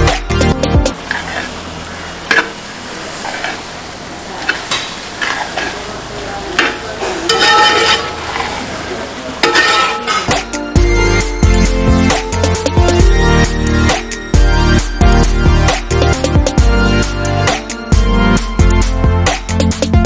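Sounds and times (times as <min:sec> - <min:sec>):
meat and onions sizzling: 0:00.0 - 0:11.5
metal ladle scraping pot: 0:00.9 - 0:01.6, 0:02.2 - 0:03.7, 0:04.4 - 0:05.9, 0:06.6 - 0:08.8, 0:09.4 - 0:10.6.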